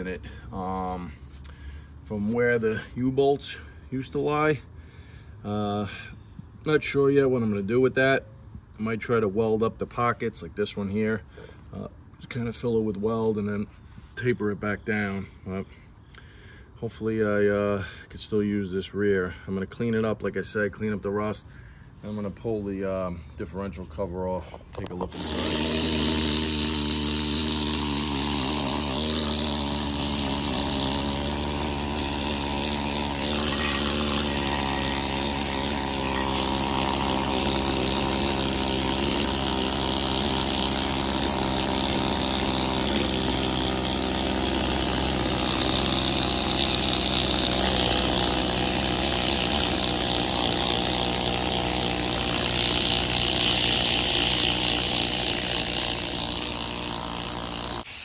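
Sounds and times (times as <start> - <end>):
needle scaler chipping rust: 0.0 - 3.5, 23.8 - 58.0.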